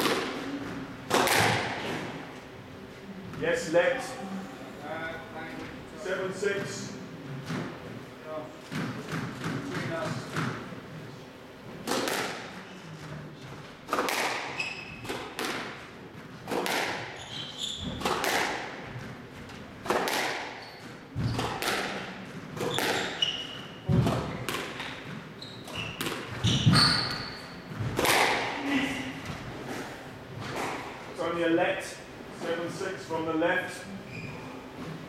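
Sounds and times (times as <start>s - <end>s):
squash ball cracking off rackets: 0.0s - 2.0s, 11.8s - 12.5s, 13.8s - 15.8s, 16.4s - 17.2s, 17.9s - 19.1s, 19.8s - 23.2s, 23.9s - 28.6s
shoes squeaking on floor: 14.5s - 15.3s, 17.0s - 18.2s, 20.5s - 21.6s, 22.6s - 27.9s, 33.9s - 35.0s.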